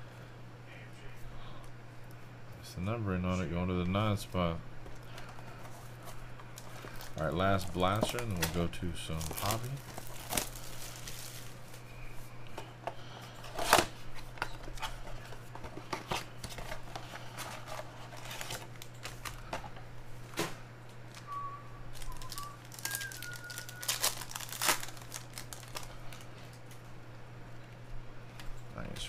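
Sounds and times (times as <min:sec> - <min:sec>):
low electrical hum: 0:00.0 - 0:29.0
foil card packs crinkling: 0:03.6 - 0:26.8
cards rustling and clicking: 0:04.8 - 0:11.9, 0:21.9 - 0:26.8.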